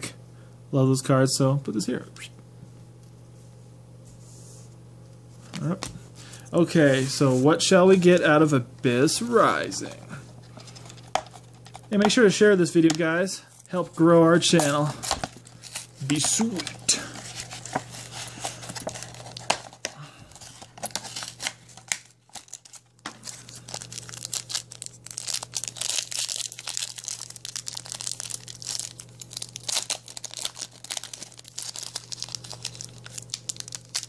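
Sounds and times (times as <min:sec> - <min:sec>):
foil wrapper crinkling and tearing: 0:14.4 - 0:34.0.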